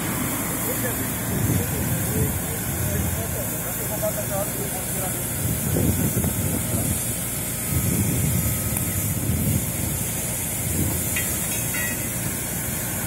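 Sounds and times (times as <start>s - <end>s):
hiss of water spray and steam: 0.0s - 13.0s
wind rumble on microphone: 1.2s - 3.4s, 5.4s - 12.0s.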